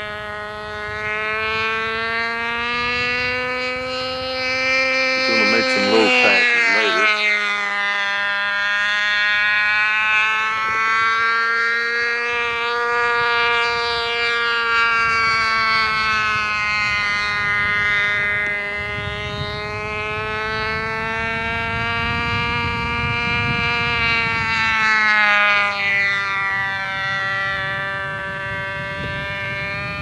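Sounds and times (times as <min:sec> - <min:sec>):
model aircraft engine whine: 0:00.0 - 0:30.0.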